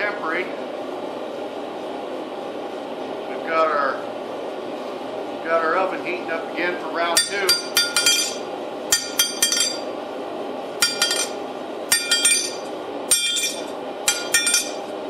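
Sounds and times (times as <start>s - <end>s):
hammer striking steel on anvil: 7.2s - 9.9s, 10.8s - 14.9s.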